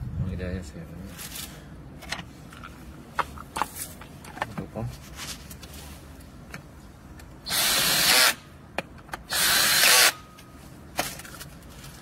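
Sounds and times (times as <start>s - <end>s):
electric drill driving screws: 7.5s - 8.4s, 9.3s - 10.2s.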